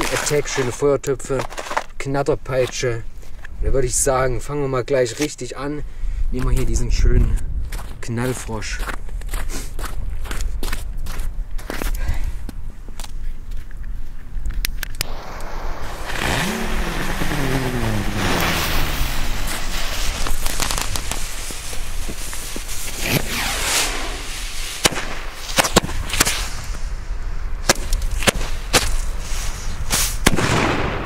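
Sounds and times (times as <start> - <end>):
firecracker sharp bangs: 15.0 - 26.6, 29.9 - 31.0
firecracker fizzing: 15.0 - 27.0.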